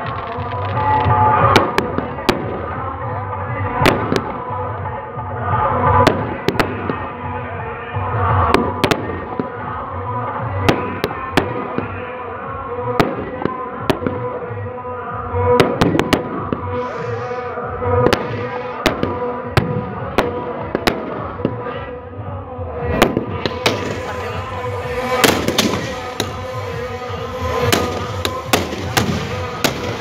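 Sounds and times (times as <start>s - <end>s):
firecrackers banging: 0.0s - 3.0s, 3.7s - 4.7s, 5.7s - 14.5s, 15.3s - 21.8s, 22.9s - 30.0s
background music: 0.0s - 30.0s
firework hiss: 16.7s - 17.5s, 23.4s - 30.0s.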